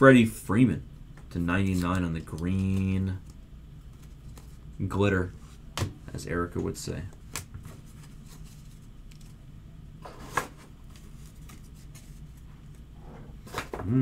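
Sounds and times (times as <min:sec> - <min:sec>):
cards and plastic sleeves handled: 0:01.6 - 0:05.7, 0:06.6 - 0:09.4, 0:10.0 - 0:13.6.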